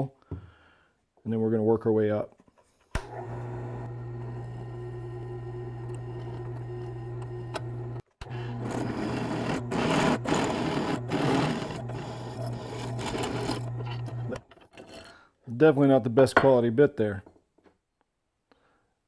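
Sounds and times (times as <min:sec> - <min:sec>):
drill press motor humming: 0:03.0 - 0:14.4
drill bit grinding into steel: 0:03.1 - 0:15.2.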